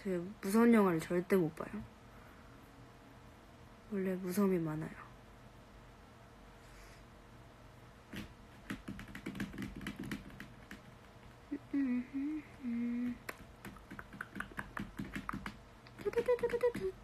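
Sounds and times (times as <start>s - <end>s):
fingers tapping on hard surface: 8.2s - 10.8s, 13.2s - 17.0s
woman humming: 11.5s - 13.4s, 15.9s - 17.0s.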